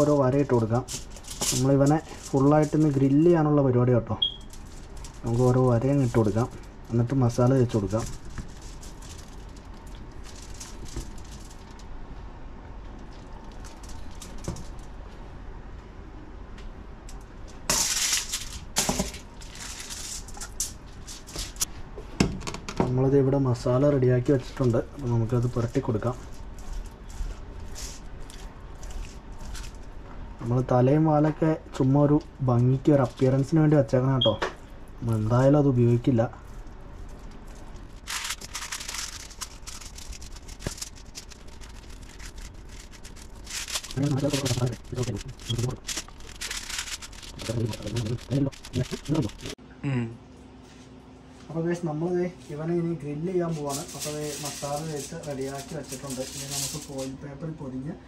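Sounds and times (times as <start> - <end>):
hands rubbing paste onto fish: 37.1 - 49.6.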